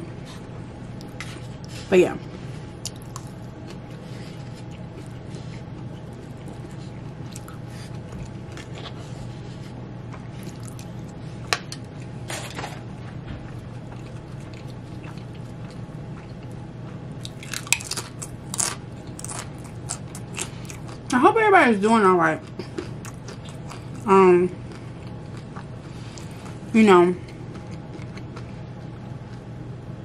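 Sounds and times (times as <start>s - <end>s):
steady low hum: 0.0s - 30.0s
chewing food: 2.8s - 11.2s, 13.4s - 21.2s, 22.4s - 29.5s.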